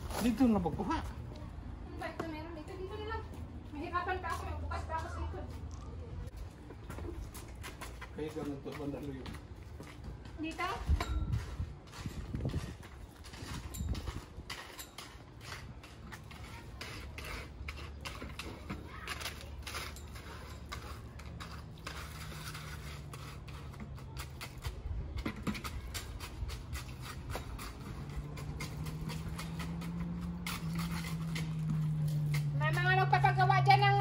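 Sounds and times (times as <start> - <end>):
concrete scraping in bucket: 10.4 - 34.0.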